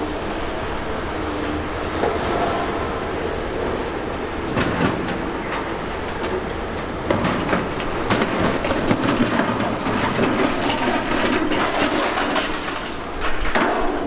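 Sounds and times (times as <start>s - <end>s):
diesel engine: 0.0s - 14.0s
rock crusher rattling: 7.1s - 14.0s.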